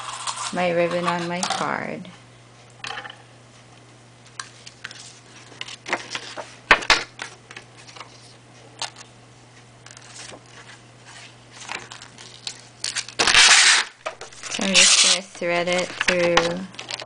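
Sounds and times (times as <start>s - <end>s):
steady low hum: 0.0s - 17.0s
paper card rustling: 4.4s - 6.6s, 7.2s - 9.1s, 9.9s - 17.0s.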